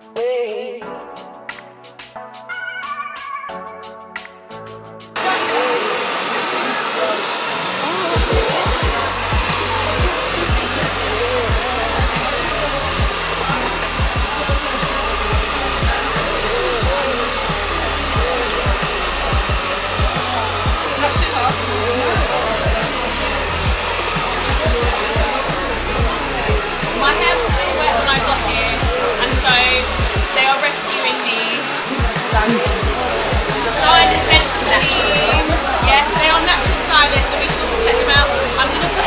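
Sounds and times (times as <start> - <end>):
hair dryer blowing: 5.2 - 39.0
music with bass beat: 7.9 - 30.4, 31.9 - 39.0.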